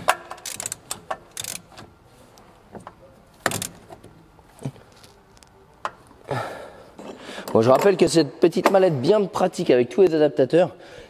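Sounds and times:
tools clicking and knocking: 0.0 - 1.9, 2.7 - 4.2.

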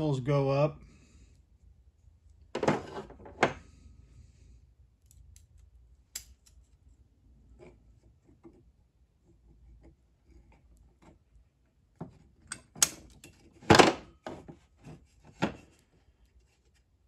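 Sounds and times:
pliers clicking: 5.0 - 6.6.

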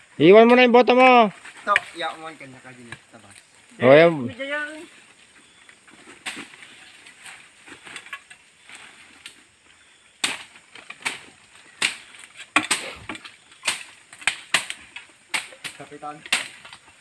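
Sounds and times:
rustling: 1.3 - 17.0
branches snapping and cracking: 6.0 - 9.4, 10.2 - 17.0.

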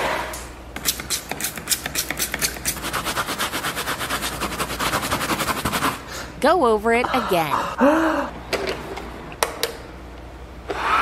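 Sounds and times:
brush scrubbing mattress: 2.9 - 6.0.

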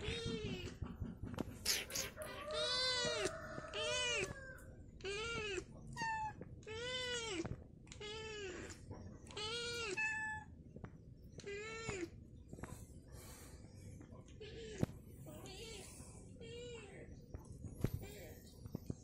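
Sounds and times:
cat chirps: 1.6 - 4.4
cat meowing: 1.8 - 10.5, 11.4 - 12.1.

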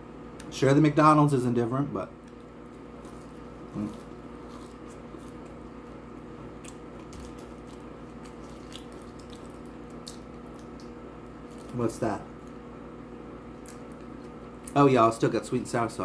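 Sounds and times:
low room hum: 0.0 - 16.0
person chewing fries: 2.2 - 11.8.

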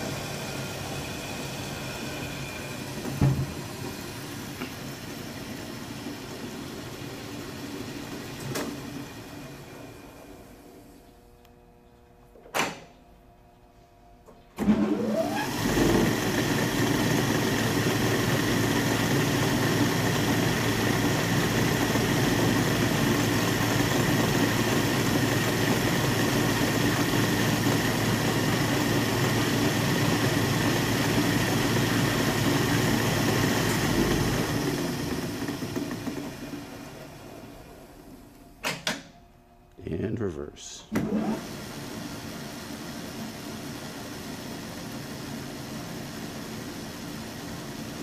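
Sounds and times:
lathe motor whirring and whining: 0.0 - 11.7, 14.6 - 38.4.

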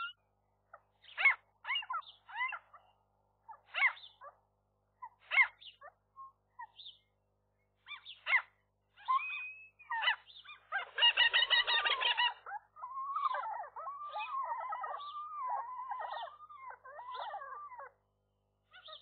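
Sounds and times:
gulls calling: 8.0 - 17.9.

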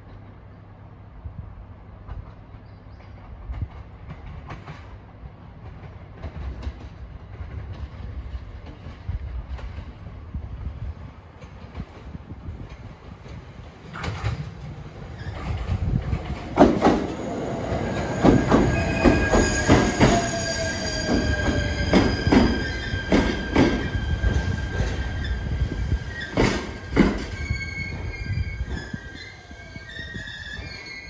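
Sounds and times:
train wheels clacking over rail joints: 11.4 - 20.4, 21.0 - 25.2, 26.1 - 28.1
high wheel squeal: 17.8 - 31.0.

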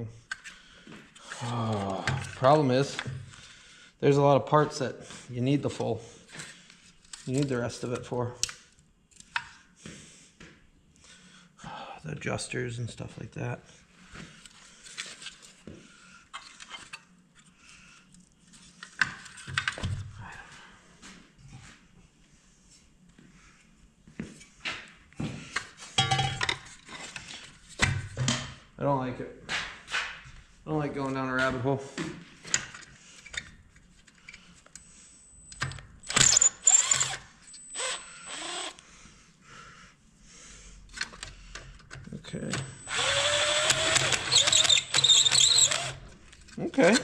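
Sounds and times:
power drill whining: 35.3 - 38.8, 42.5 - 46.1.

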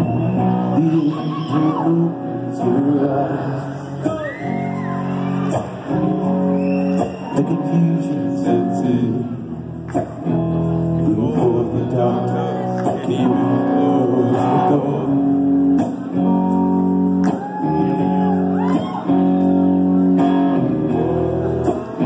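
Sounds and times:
man singing lead vocal: 0.0 - 4.8, 7.2 - 9.8, 10.8 - 16.1
crowd voices: 0.0 - 22.0
rock band playing live: 0.0 - 22.0.

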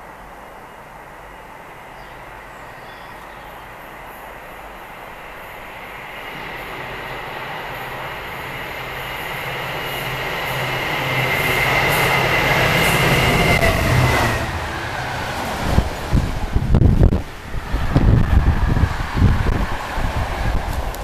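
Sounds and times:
diesel locomotive engine: 0.0 - 21.0
freight wagons rushing past: 5.1 - 21.0.

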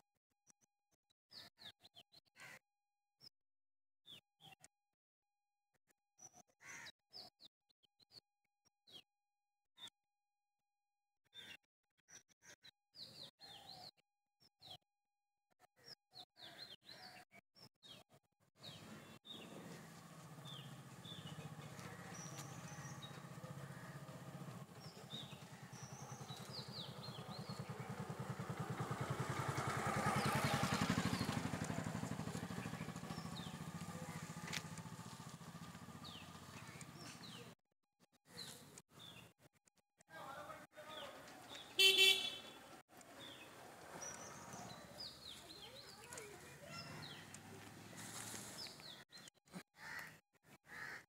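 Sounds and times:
small birds chirping: 18.6 - 37.6, 40.9 - 50.1
vehicle engine passing: 18.7 - 37.5, 41.8 - 48.8.

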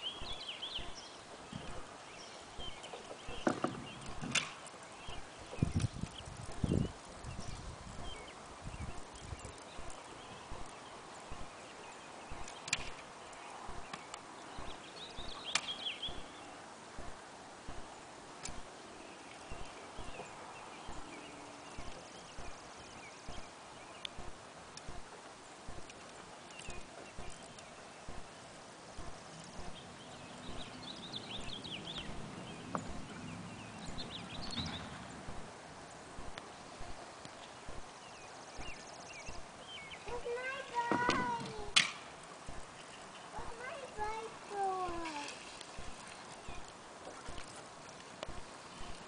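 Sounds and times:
birds chirping: 0.0 - 49.0
scooter wheels clicking on concrete: 40.2 - 42.2.

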